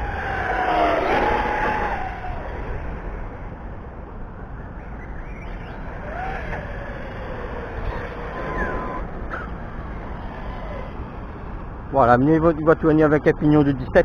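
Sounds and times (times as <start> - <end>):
rc car electric motor whining: 0.0 - 3.4, 5.4 - 11.5
low steady rumble: 0.0 - 14.0.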